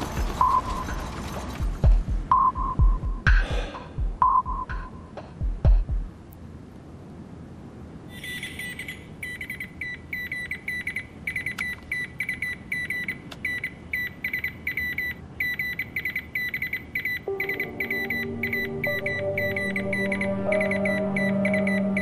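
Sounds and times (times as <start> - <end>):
telegraph beeping: 8.1 - 22.0
sustained music chords: 17.3 - 22.0.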